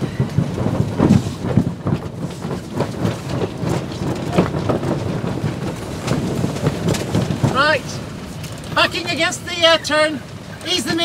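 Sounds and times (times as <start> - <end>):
sail knocks and flaps: 0.0 - 11.0
strong wind buffeting microphone: 0.0 - 11.0.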